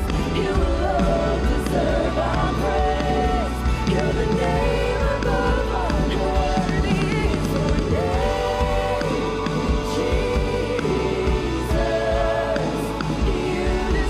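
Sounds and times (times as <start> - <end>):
singers holding long notes: 0.0 - 14.0
worship band playing slow song: 0.0 - 14.0.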